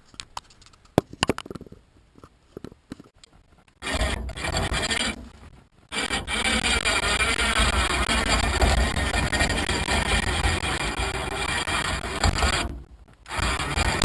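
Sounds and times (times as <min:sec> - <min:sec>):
log grinding and rasping: 0:03.8 - 0:14.0.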